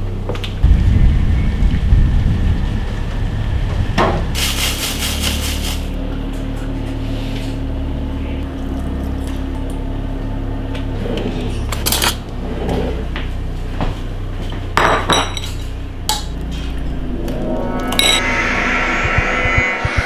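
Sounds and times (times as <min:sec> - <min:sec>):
steady low hum: 0:00.0 - 0:20.0
ceramic bowl and cutlery clatter: 0:14.8 - 0:15.7.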